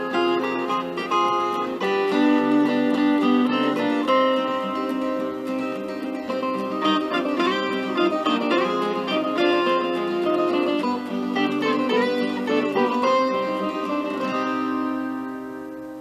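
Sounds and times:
plucked string instrument music: 0:00.0 - 0:16.0.

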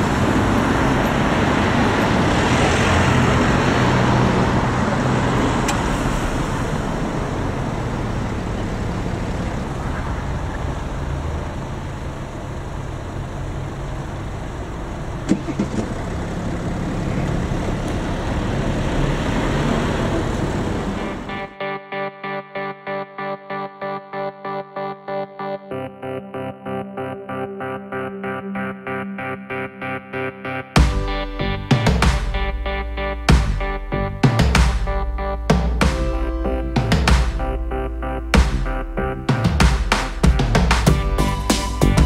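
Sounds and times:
traffic engine hum and tyre noise: 0:00.0 - 0:21.6.

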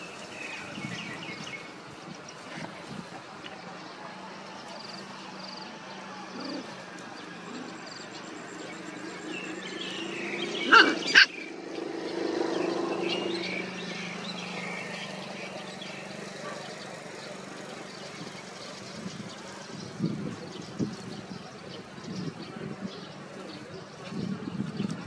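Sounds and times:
puppies yapping: 0:10.4 - 0:11.5
puppy yelps: 0:10.6 - 0:11.4.

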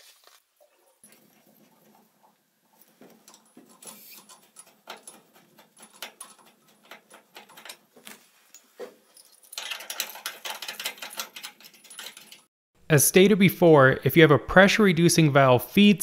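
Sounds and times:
small chain jangling: 0:08.5 - 0:12.5.

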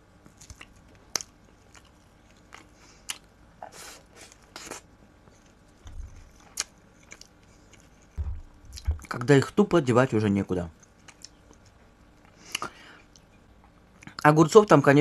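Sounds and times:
person chewing wet mouth clicks: 0:02.5 - 0:03.2, 0:12.5 - 0:13.3.

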